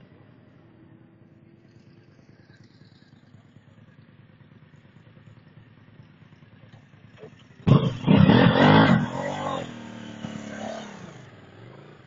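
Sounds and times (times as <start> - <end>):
motorcycle engines idling: 0.0 - 12.0
motorcycle engine revving loudly: 7.6 - 12.0.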